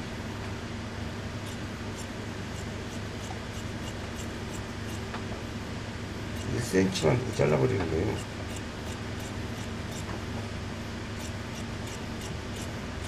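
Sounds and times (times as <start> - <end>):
low room hum: 0.0 - 13.0
shears snipping fabric: 1.4 - 5.2, 6.4 - 10.2, 11.2 - 12.8.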